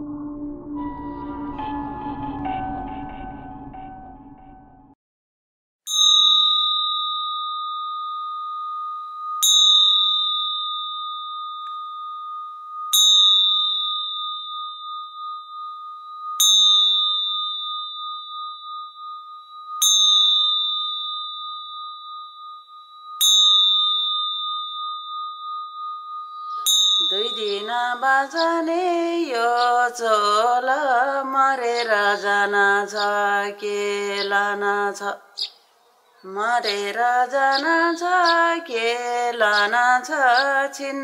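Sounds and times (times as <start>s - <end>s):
small metal bell ringing: 5.9s - 28.6s.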